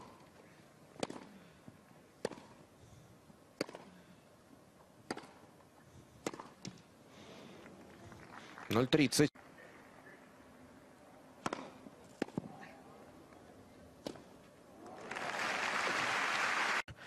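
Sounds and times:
rackets hitting tennis ball: 1.0 - 1.4, 2.2 - 2.6, 3.6 - 4.0, 5.0 - 5.5, 6.2 - 6.8, 11.4 - 12.7, 14.0 - 14.4.

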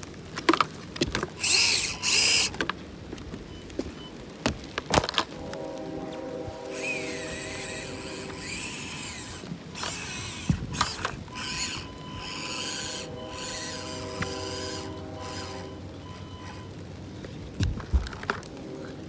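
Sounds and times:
small electric motor whirring: 1.4 - 2.6, 6.7 - 16.8.

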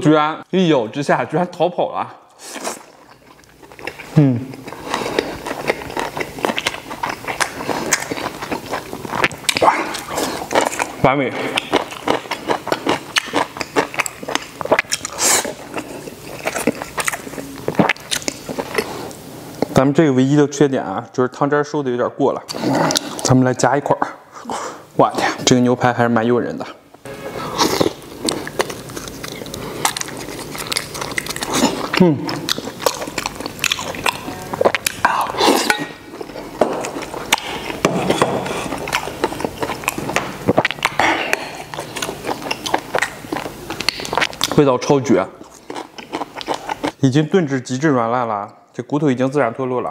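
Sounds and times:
chewing food: 2.4 - 19.8, 27.6 - 44.6, 45.2 - 47.1.

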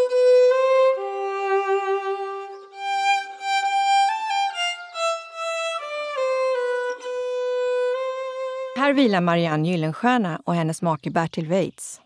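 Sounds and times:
violin playing slow melody: 0.0 - 9.1.

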